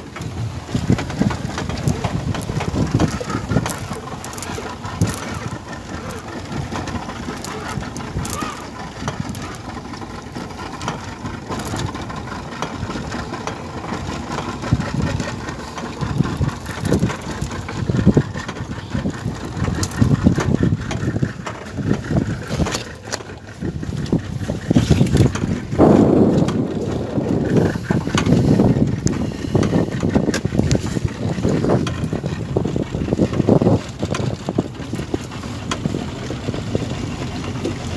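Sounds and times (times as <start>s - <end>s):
outboard motor running: 0.0s - 37.9s
rushing water noise: 0.0s - 37.9s.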